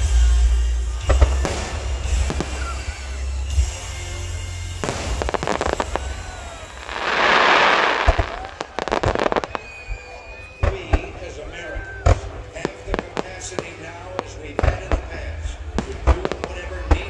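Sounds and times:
fireworks bangs and crackles: 0:00.0 - 0:17.0
low rumble: 0:00.9 - 0:09.7
dense hiss: 0:01.2 - 0:09.6.

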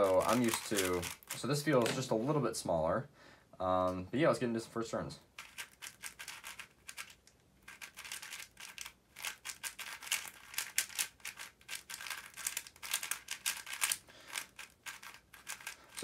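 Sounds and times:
puzzle cube clicking as turned: 0:00.1 - 0:01.4, 0:05.4 - 0:16.0.

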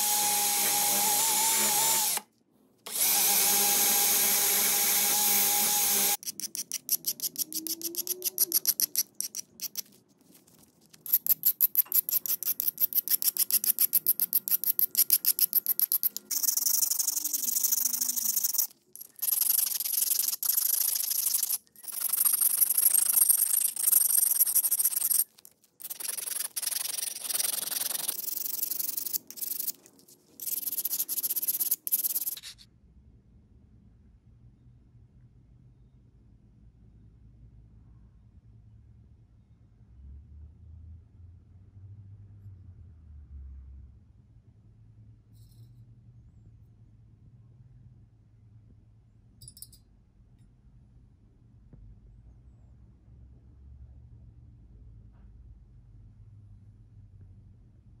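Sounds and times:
wire brush grinding metal: 0:14.6 - 0:29.8.

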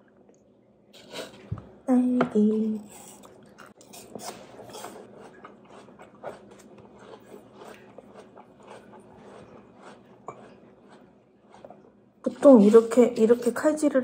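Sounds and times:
person chewing food: 0:02.9 - 0:12.6.

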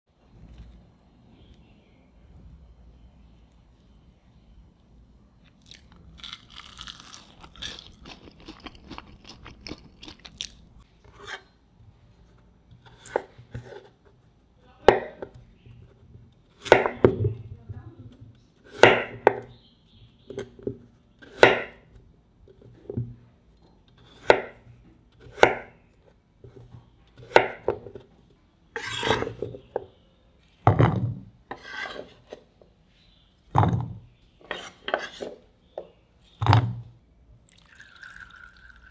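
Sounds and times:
fried potato sticks crunching: 0:05.4 - 0:10.8
knife chopping on wooden board: 0:16.6 - 0:17.2, 0:18.7 - 0:19.5, 0:21.2 - 0:21.8, 0:24.1 - 0:24.6, 0:25.2 - 0:25.7, 0:27.2 - 0:27.8.

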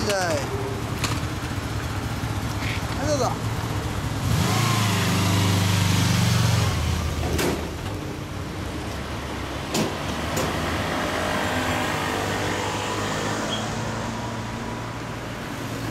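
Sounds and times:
motorcycle engine pulling away: 0:03.6 - 0:07.2.

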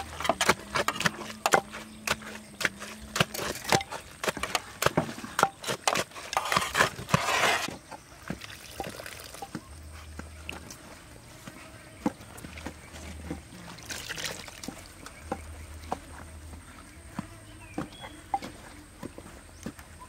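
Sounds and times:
pestle pounding in clay mortar: 0:00.0 - 0:09.6, 0:14.6 - 0:19.2.

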